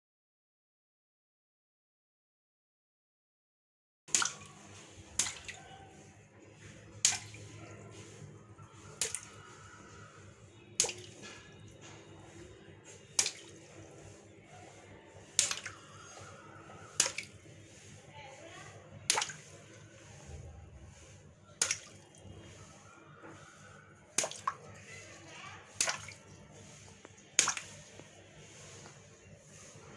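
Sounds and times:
water balloons popping: 0:04.1 - 0:04.5, 0:08.9 - 0:09.3, 0:10.8 - 0:11.5, 0:13.1 - 0:13.6, 0:15.3 - 0:15.9, 0:16.9 - 0:17.4, 0:19.1 - 0:19.4, 0:21.6 - 0:22.0, 0:24.1 - 0:24.6, 0:25.8 - 0:26.2, 0:27.3 - 0:28.0
water splashing: 0:04.1 - 0:05.6, 0:07.0 - 0:08.2, 0:10.7 - 0:12.3, 0:13.1 - 0:14.1, 0:15.2 - 0:16.3, 0:16.9 - 0:17.9, 0:19.0 - 0:20.3, 0:20.9 - 0:22.6, 0:23.6 - 0:28.8.

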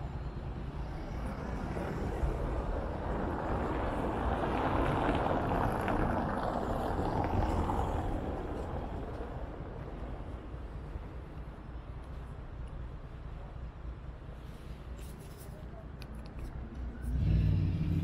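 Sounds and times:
vehicle passing by: 0:17.0 - 0:18.0.

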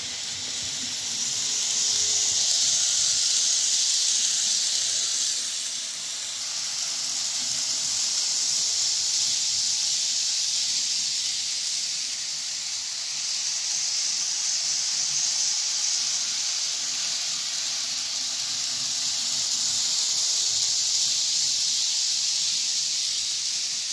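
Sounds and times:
model train high hiss: 0:00.0 - 0:23.9.

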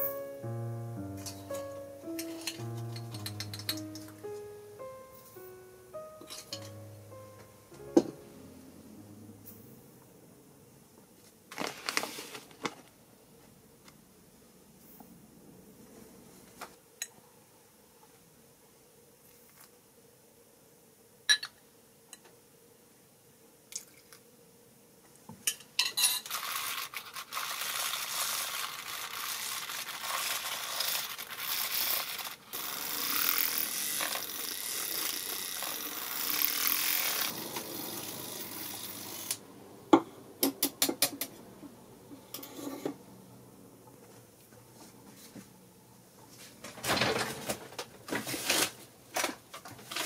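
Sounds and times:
dishes and utensils clinking: 0:01.2 - 0:04.2, 0:06.2 - 0:06.8, 0:25.5 - 0:26.4.

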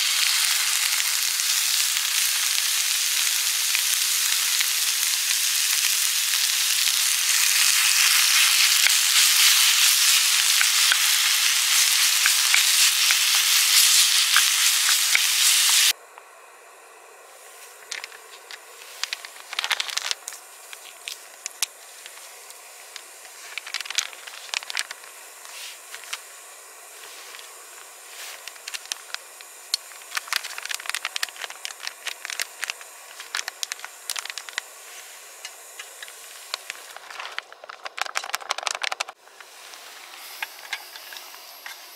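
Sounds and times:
food sizzling in a frying pan: 0:00.0 - 0:16.0, 0:20.0 - 0:36.8
gas burner hissing: 0:00.0 - 0:41.9
food packet crinkling: 0:17.8 - 0:22.2, 0:22.9 - 0:25.1, 0:28.2 - 0:34.7, 0:36.5 - 0:39.2.

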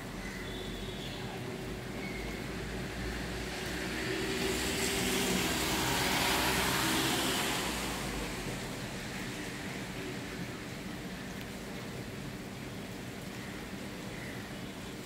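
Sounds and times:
vehicle passing by: 0:03.1 - 0:08.8.

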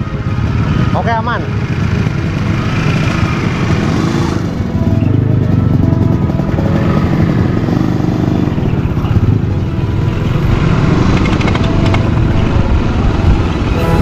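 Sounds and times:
motorcycle engine running: 0:00.0 - 0:14.0.

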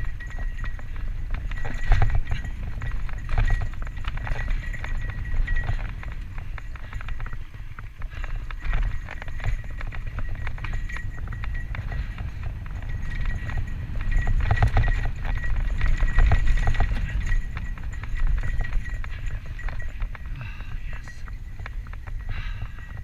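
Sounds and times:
chain and frame rattling: 0:00.0 - 0:23.0
wind on microphone: 0:00.0 - 0:23.0.

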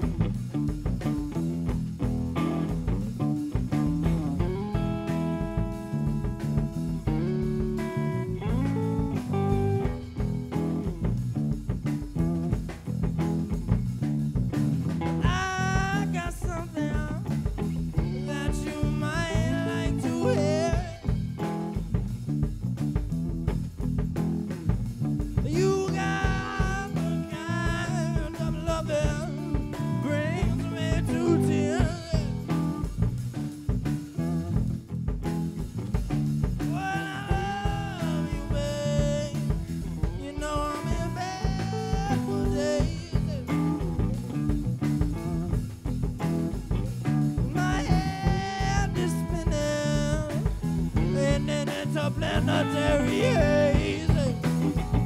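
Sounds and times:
bass guitar: 0:00.0 - 0:55.0
drum kit: 0:00.0 - 0:55.0
electric guitar: 0:00.0 - 0:55.0
man singing: 0:15.1 - 0:17.4, 0:18.0 - 0:21.5, 0:25.4 - 0:33.1, 0:36.6 - 0:44.2, 0:47.4 - 0:55.0.

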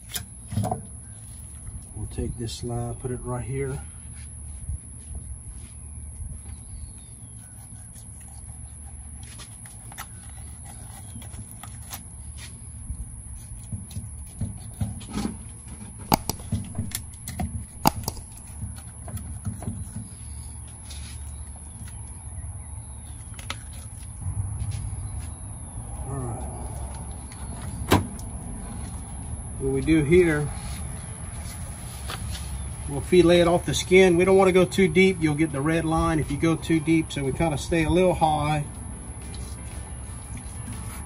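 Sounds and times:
steady low hum: 0:00.0 - 0:41.0
knife cutting fish: 0:16.1 - 0:18.5
clicks and knocks of handling: 0:16.1 - 0:19.8.

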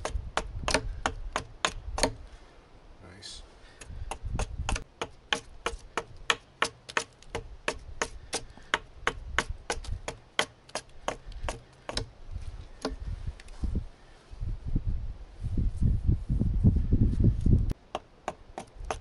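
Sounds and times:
hatchet chopping wood: 0:00.0 - 0:02.3, 0:03.8 - 0:12.1, 0:12.8 - 0:13.0, 0:17.8 - 0:19.0.

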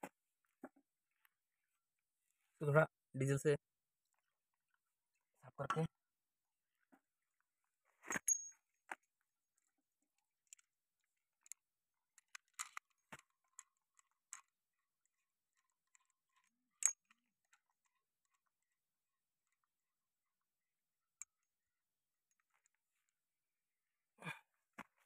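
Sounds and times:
small metal parts clicking: 0:12.2 - 0:14.5, 0:15.6 - 0:17.6.

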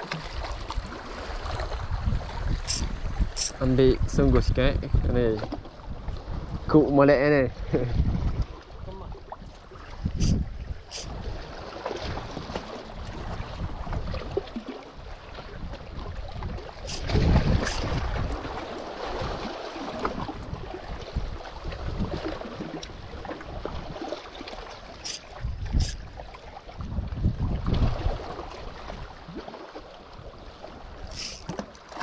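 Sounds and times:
sea washing against rocks: 0:00.0 - 0:04.1, 0:09.7 - 0:26.0
wind buffeting microphone: 0:00.4 - 0:14.4, 0:15.0 - 0:24.0, 0:25.2 - 0:29.2.

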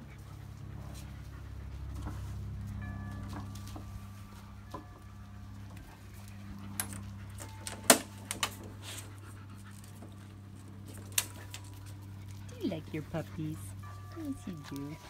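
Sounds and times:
low hum: 0:00.0 - 0:15.0
dogs scrambling on mesh cot: 0:05.9 - 0:15.0.

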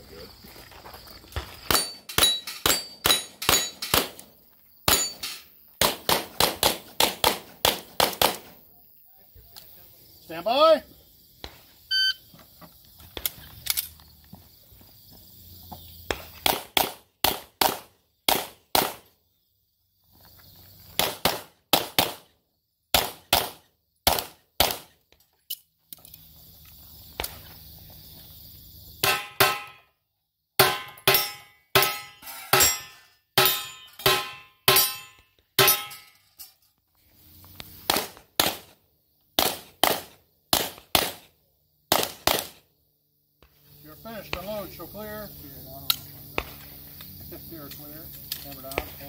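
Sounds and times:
metallic ring: 0:01.7 - 0:03.9, 0:04.9 - 0:05.5, 0:30.6 - 0:36.7
handgun shots: 0:23.0 - 0:24.9, 0:39.4 - 0:41.2, 0:41.9 - 0:42.6.

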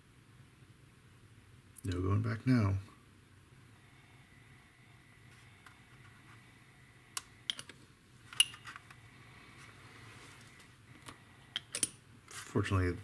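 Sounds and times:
faint low hum: 0:00.0 - 0:13.0
plastic parts clicking: 0:11.0 - 0:12.0.

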